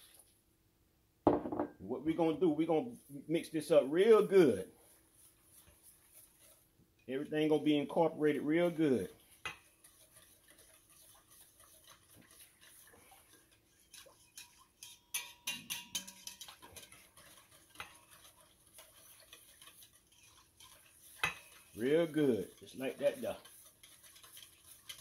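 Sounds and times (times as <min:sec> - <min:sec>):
whisk clicking in metal bowl: 0:05.2 - 0:07.5, 0:08.3 - 0:25.0.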